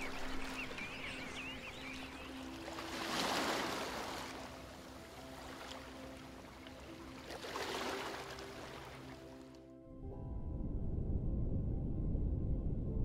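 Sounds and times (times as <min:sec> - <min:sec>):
surf washing on a shore: 0:00.0 - 0:09.1.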